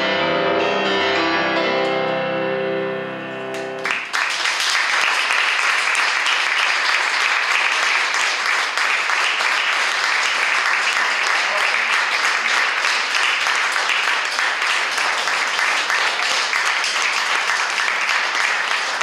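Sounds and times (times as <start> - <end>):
grand piano playing: 0.0 - 4.1
audience applauding: 3.8 - 19.0.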